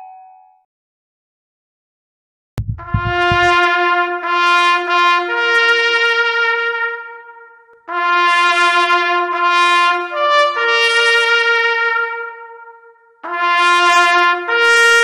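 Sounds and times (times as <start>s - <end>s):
short low rumble: 2.6s - 3.6s
solo trumpet bugle call: 2.7s - 15.0s.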